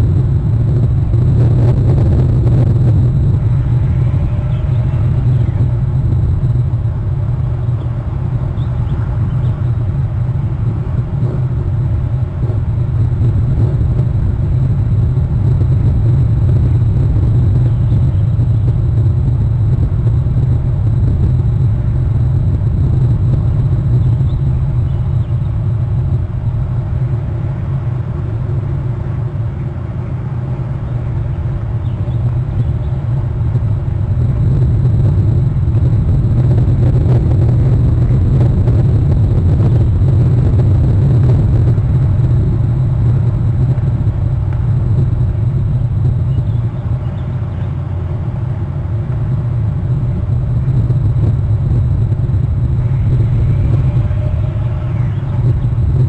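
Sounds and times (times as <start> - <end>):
low outdoor background rumble: 0.0 - 56.0.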